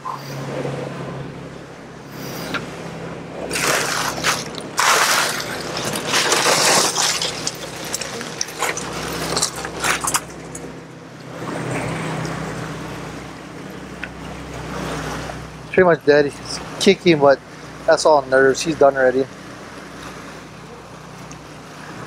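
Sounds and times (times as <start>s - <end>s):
boat engine humming: 0.0s - 22.0s
scraping and knocking of fish box: 3.5s - 10.6s.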